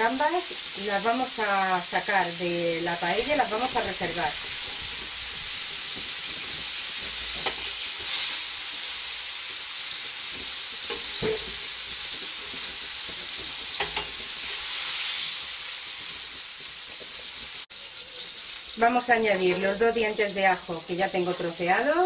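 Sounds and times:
hot oil sizzling: 0.0 - 22.0.

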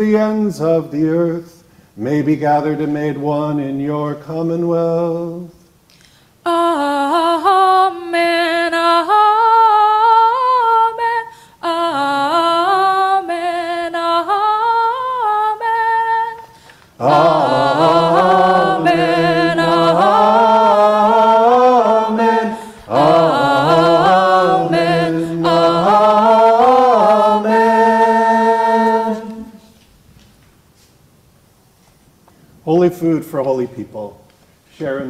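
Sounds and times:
unaccompanied voices singing: 6.5 - 29.8.

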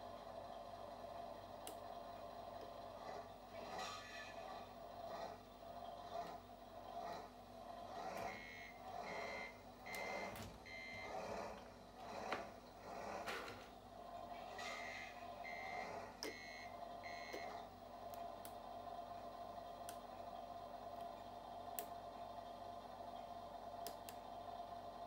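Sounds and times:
reversing beeper: 8.2 - 11.6, 14.4 - 17.6.

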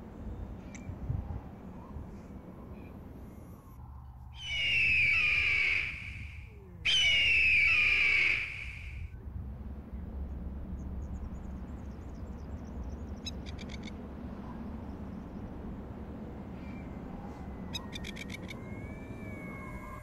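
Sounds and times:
wind rumble on microphone: 0.0 - 20.0
bird chirping: 4.4 - 9.0.

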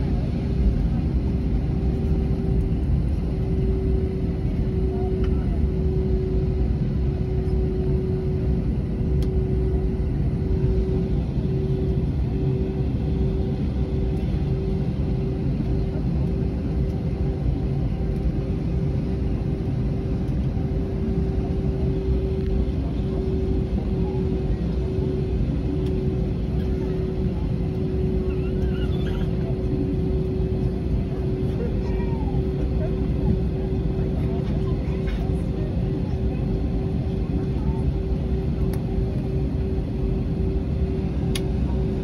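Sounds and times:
aircraft cabin low rumble: 0.0 - 42.0.

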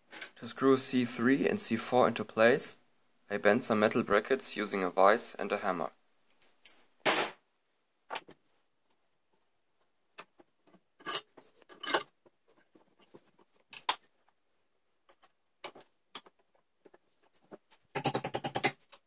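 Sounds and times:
metallic clinks and clanks: 11.0 - 12.1.

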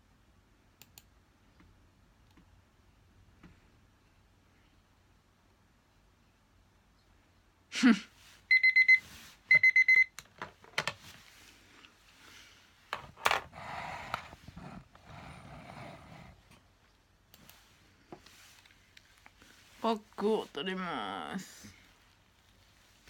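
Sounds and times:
rustling and handling noises: 8.2 - 20.7, 21.7 - 23.0
digital timer alarm beeping: 8.5 - 10.1.

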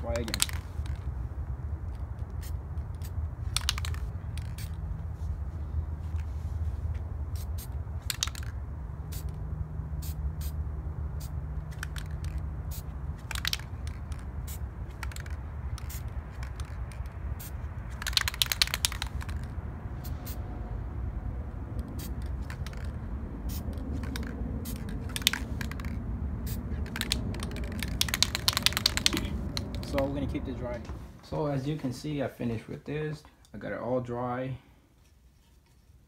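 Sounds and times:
steady low rumble: 0.0 - 32.9
spray can ball rattling: 0.1 - 1.2, 1.9 - 4.9, 7.4 - 9.4, 10.0 - 10.6, 11.2 - 20.4, 21.8 - 30.1.

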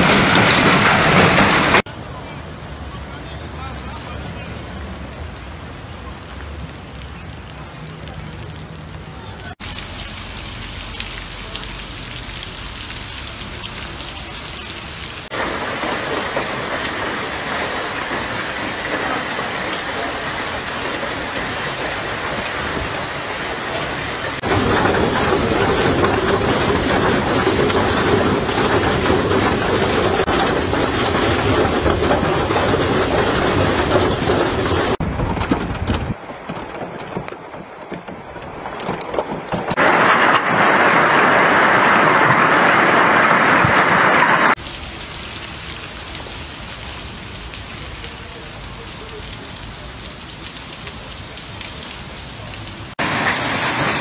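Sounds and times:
hail and heavy rain: 0.0 - 54.0.

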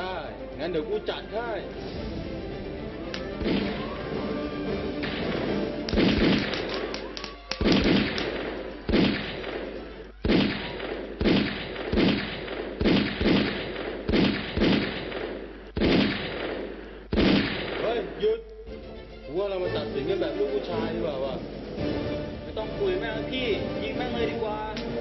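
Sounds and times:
staged gunfire bangs: 3.2 - 4.0, 5.0 - 18.2.

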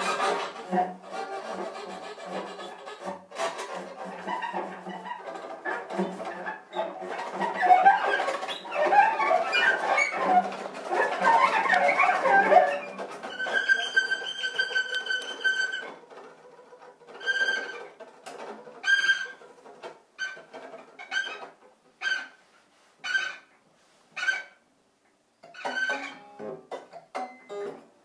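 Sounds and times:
cello bowed notes: 0.0 - 19.6, 25.4 - 26.8.

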